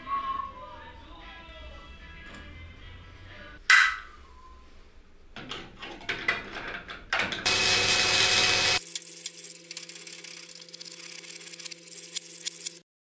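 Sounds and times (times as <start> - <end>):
tool clicks and scraping: 6.6 - 12.8
power tool burst: 7.5 - 12.8
steady hum with rapid clicking: 7.5 - 12.8.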